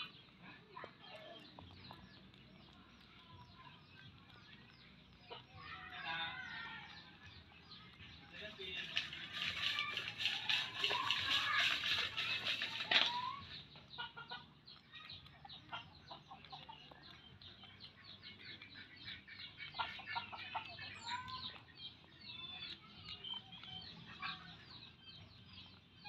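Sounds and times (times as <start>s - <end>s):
birds clucking and chirping: 0.0s - 26.0s.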